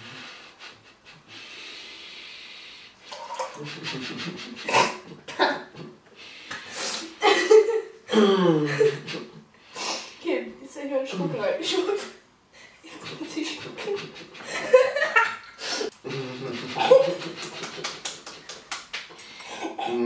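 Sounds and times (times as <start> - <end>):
woman laughing: 7.2 - 9.4, 12.8 - 15.6, 16.4 - 18.5.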